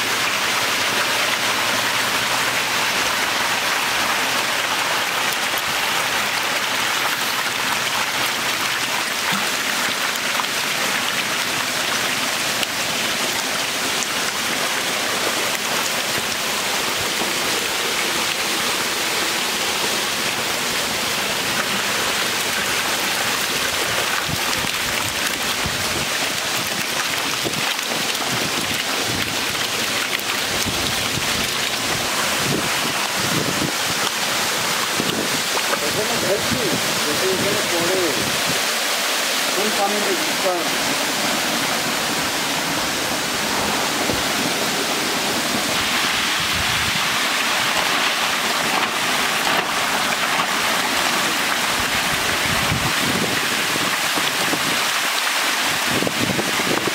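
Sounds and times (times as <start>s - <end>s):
fish splashing in water: 0.0s - 35.9s.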